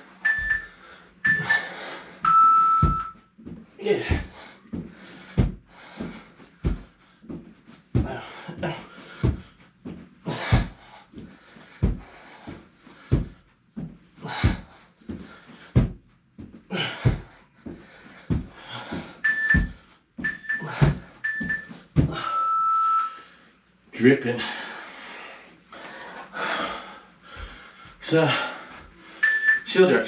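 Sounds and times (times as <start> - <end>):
heavy panting breaths: 0.0 - 2.4, 3.4 - 22.4, 23.2 - 29.4
interval timer beeps: 0.2 - 3.3, 19.2 - 23.2, 29.2 - 29.7
feet thudding on floor: 0.3 - 1.7, 2.6 - 22.3.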